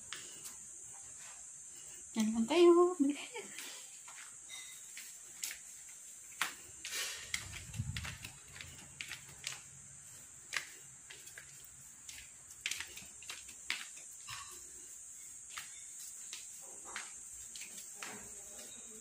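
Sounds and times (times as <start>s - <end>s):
broom sweeping a floor: 0.0s - 2.8s, 3.4s - 19.0s
faint steady hiss: 0.0s - 19.0s.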